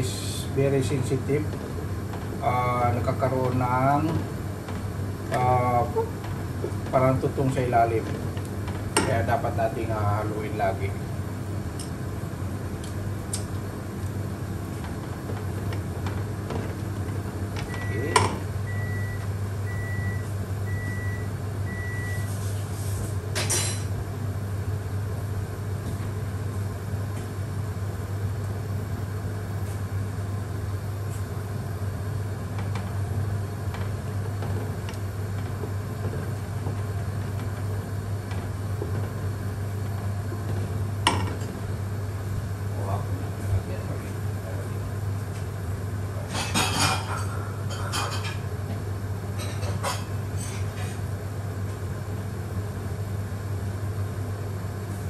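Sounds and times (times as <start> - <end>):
kitchen hum: 0.0 - 55.0
short electronic appliance beeps: 17.7 - 22.4.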